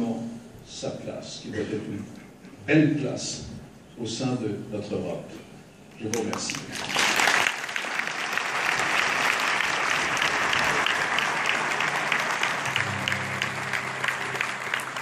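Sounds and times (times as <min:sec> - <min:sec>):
audience applauding: 0:06.1 - 0:15.0.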